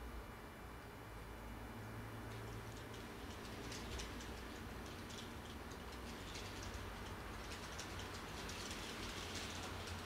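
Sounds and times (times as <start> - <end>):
low steady hum: 0.0 - 10.0
model train wheels clicking: 2.2 - 10.0.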